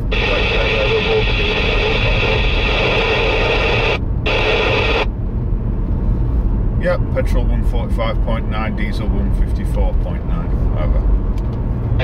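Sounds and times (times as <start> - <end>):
radio speaker hiss and buzz: 0.0 - 5.1
car road and engine rumble: 0.0 - 12.0.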